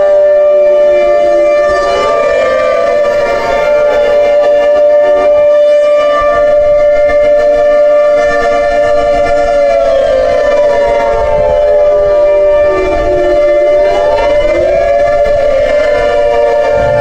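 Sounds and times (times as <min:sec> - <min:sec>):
civil defense warning siren: 0:00.0 - 0:17.0.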